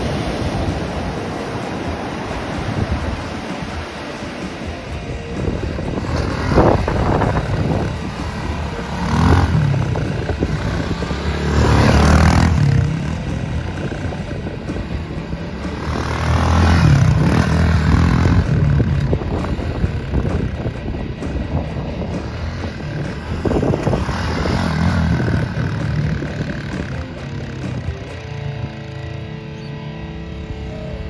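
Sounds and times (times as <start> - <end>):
dirt bike engine revving: 0.0 - 31.0.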